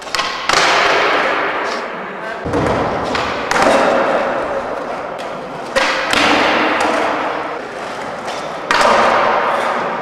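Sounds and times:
skateboard slapping down: 0:02.5 - 0:09.8
skateboard wheels rolling: 0:02.5 - 0:10.0.

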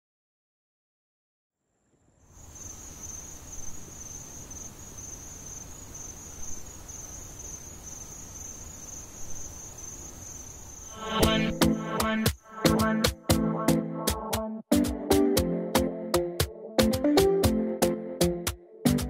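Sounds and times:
low background hiss: 0:01.7 - 0:11.0
crickets trilling: 0:02.2 - 0:12.7.

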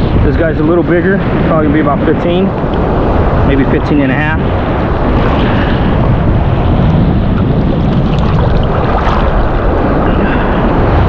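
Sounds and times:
surf washing: 0:00.0 - 0:11.0
wind buffeting microphone: 0:00.0 - 0:11.0.

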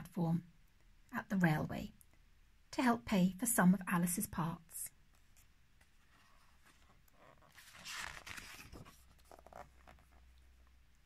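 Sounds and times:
book pages turning: 0:05.2 - 0:10.6.

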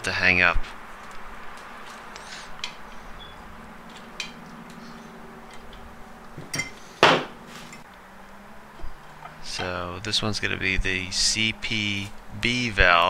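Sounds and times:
faint steady hum: 0:00.0 - 0:13.0
light metallic clinks and taps: 0:06.4 - 0:06.8.

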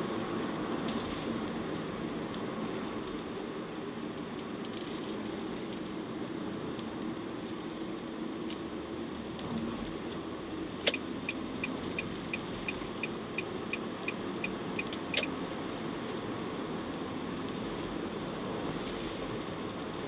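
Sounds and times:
car road and engine noise: 0:00.0 - 0:20.0
turn signal ticking: 0:10.8 - 0:15.6.

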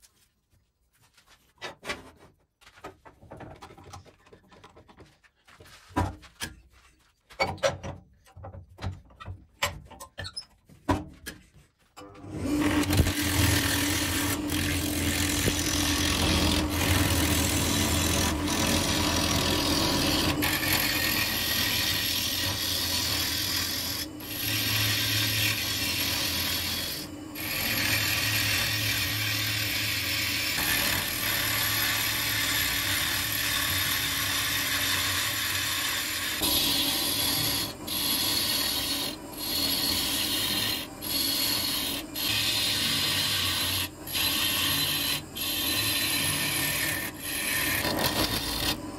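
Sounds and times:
lathe gouge cutting wood: 0:12.4 - 0:48.9.

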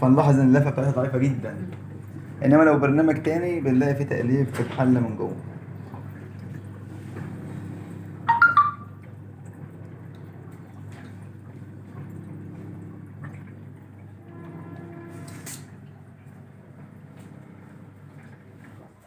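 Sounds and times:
washing machine motor hum: 0:00.0 - 0:19.0
water moving in tub: 0:01.1 - 0:19.0
sharp high-pitched sound: 0:08.3 - 0:08.8.

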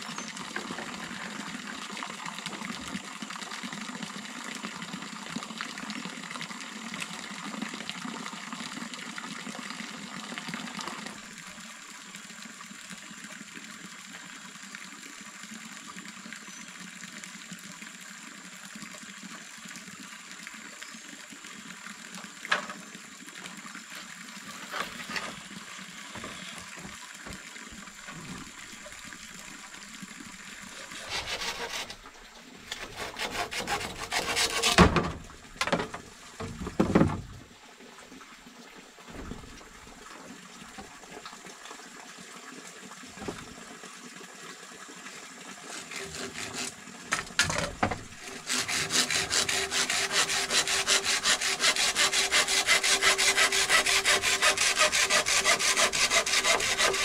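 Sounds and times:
water trickling: 0:00.0 - 0:57.0
hand sawing wood: 0:24.5 - 0:25.5, 0:30.6 - 0:36.0, 0:45.7 - 0:57.0.

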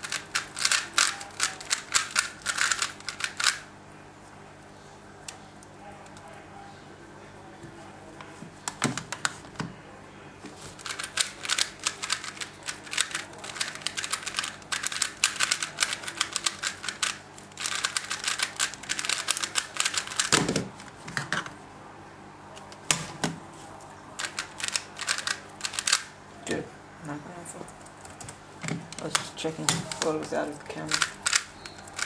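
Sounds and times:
plastic puzzle cube clicking: 0:00.0 - 0:03.6, 0:10.9 - 0:20.3, 0:24.2 - 0:26.1, 0:30.9 - 0:32.0.

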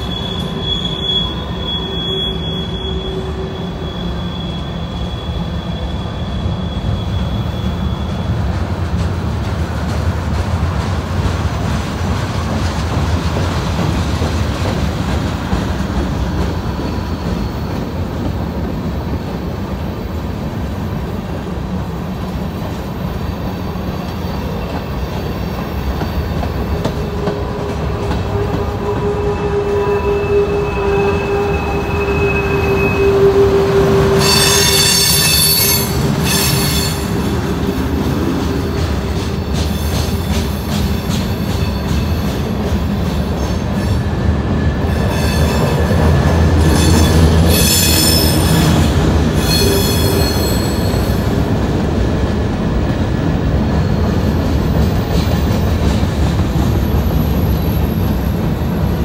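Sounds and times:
shrill wheel squeal: 0:00.0 - 0:08.5, 0:28.2 - 0:37.8, 0:43.4 - 0:46.0, 0:46.6 - 0:51.4
train wheel squeal: 0:00.0 - 0:08.8, 0:15.1 - 0:20.2, 0:23.0 - 0:51.5, 0:53.5 - 0:59.0
train wheels rumbling on rails: 0:00.0 - 0:59.0.

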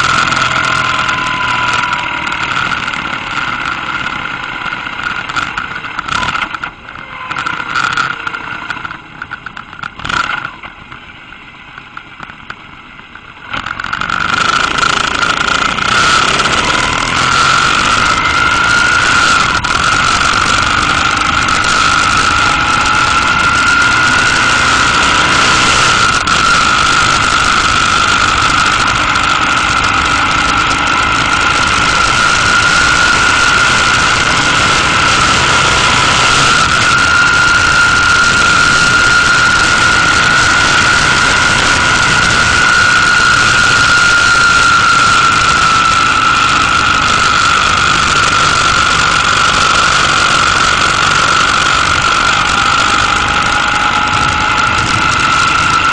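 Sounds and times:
motorcycle engine whine: 0:00.0 - 0:55.9
wind noise on microphone: 0:13.6 - 0:55.9.

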